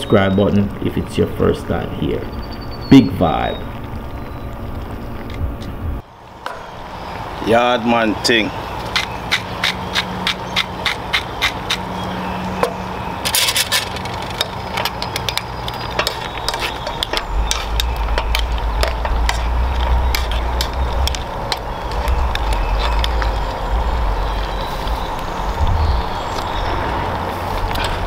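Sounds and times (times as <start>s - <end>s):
low rumble: 0.6s - 7.4s, 14.0s - 28.0s
pepper mill grinding: 13.2s - 23.6s.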